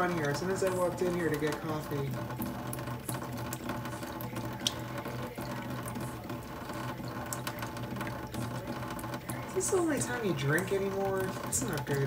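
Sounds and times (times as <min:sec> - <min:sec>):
cat lapping water: 0:00.0 - 0:12.0
tap water running into sink: 0:00.0 - 0:12.0.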